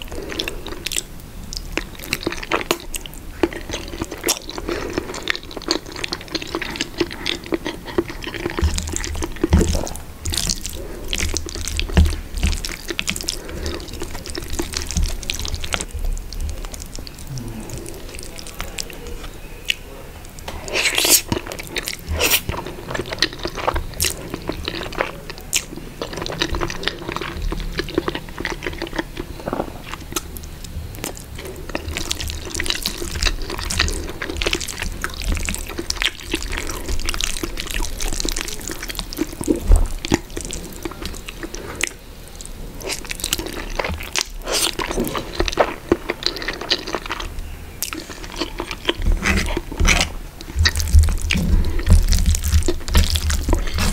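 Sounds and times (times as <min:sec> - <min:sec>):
wet chewing and mouth smacks: 0:00.0 - 0:53.9
noodles slurped: 0:01.8 - 0:19.3, 0:31.0 - 0:53.9.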